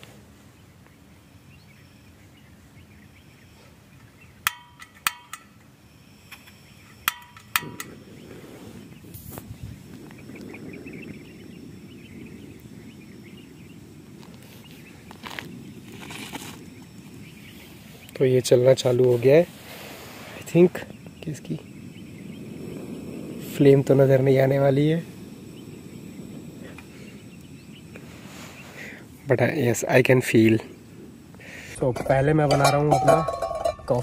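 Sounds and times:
gas burner rushing: 0:03.5 - 0:34.0
piezo igniter snapping: 0:04.4 - 0:05.7, 0:06.3 - 0:08.1.

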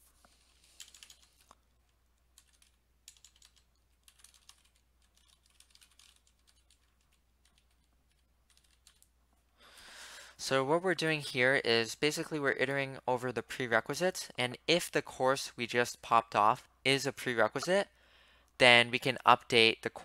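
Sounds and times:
faint keyboard typing: 0:00.1 - 0:09.5.

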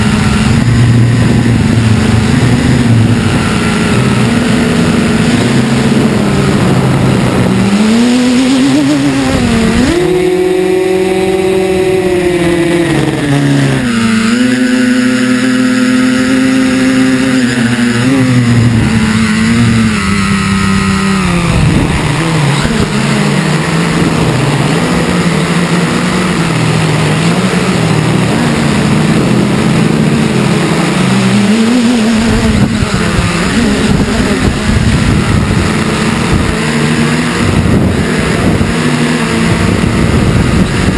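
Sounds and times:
drone motors whining: 0:00.0 - 0:40.9.

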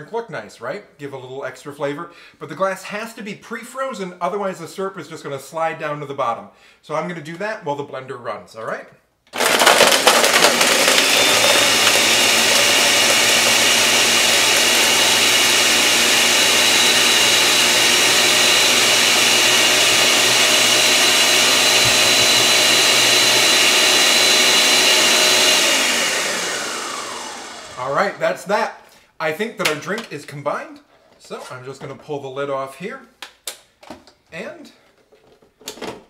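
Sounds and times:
blender running with high whine: 0:09.4 - 0:28.2.

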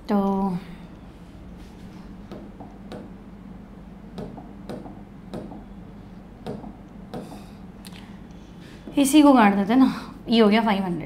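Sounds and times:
faint steady hum: 0:00.0 - 0:11.0
taps on a touchscreen: 0:04.2 - 0:05.7.

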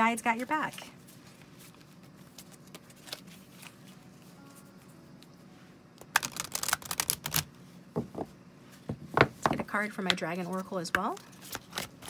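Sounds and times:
cards being shuffled: 0:00.6 - 0:04.3, 0:06.0 - 0:07.5, 0:10.5 - 0:12.0.

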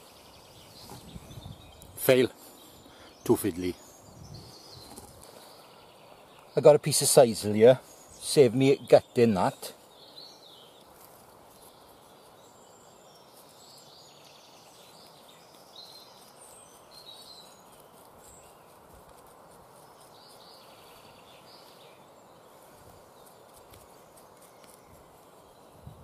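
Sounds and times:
rustling of fibres by hand: 0:10.6 - 0:26.0.

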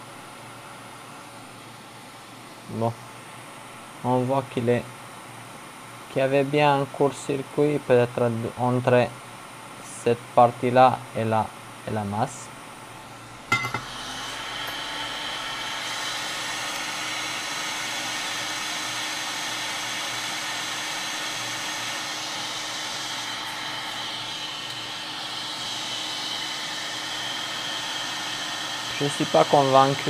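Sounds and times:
hot air station hissing: 0:08.6 - 0:30.0.

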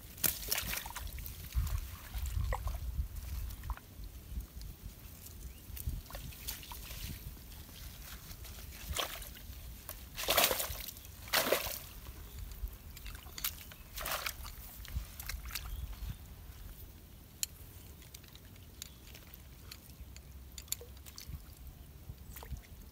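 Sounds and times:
splashing in muddy water: 0:00.0 - 0:03.9, 0:05.8 - 0:16.0.

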